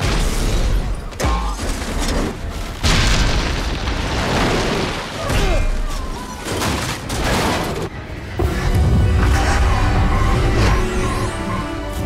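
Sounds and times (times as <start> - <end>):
film score music: 6.4 - 12.0.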